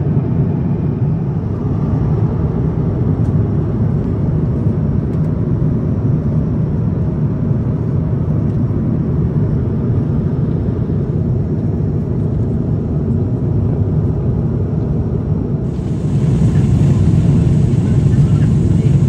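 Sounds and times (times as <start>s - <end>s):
aircraft cabin engine rumble: 0.0s - 19.0s
airflow noise: 15.6s - 19.0s.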